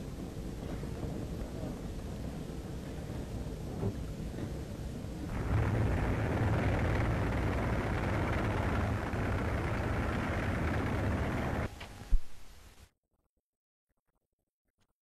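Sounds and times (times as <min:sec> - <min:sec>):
low rumbling battle roar: 0:05.3 - 0:11.7.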